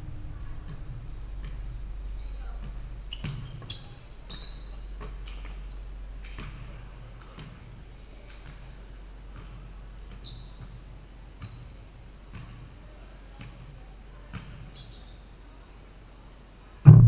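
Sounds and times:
sneaker squeaks: 2.2s - 8.8s, 9.4s - 12.7s, 13.4s - 15.4s.

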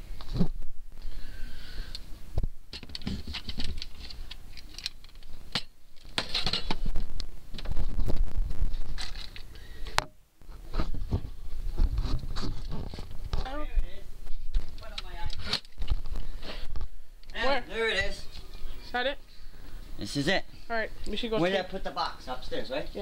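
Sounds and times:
objects clicking and clattering: 2.7s - 6.9s, 8.8s - 9.5s
hands rummaging through objects: 2.7s - 9.5s.

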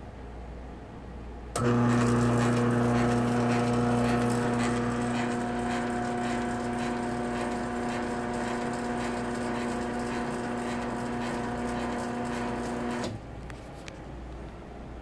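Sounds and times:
garage door opener motor humming: 1.6s - 13.2s.

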